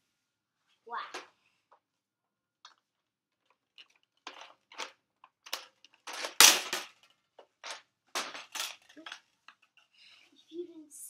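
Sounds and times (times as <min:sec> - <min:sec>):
rustling and knocking handling noise: 0:02.6 - 0:10.0.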